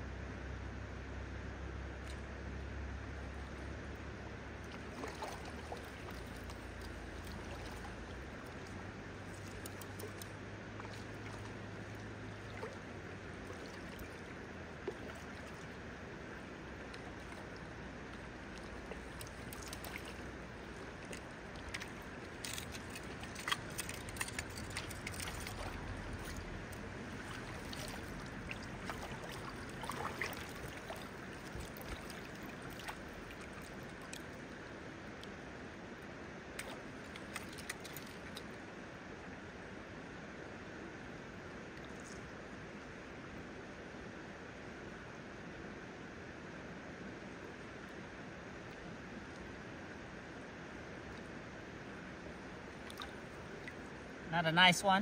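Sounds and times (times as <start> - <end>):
river water flowing: 0.0 - 55.0
short sharp splashes and knocks: 4.6 - 15.8, 16.9 - 34.4, 36.6 - 38.5, 52.8 - 53.9.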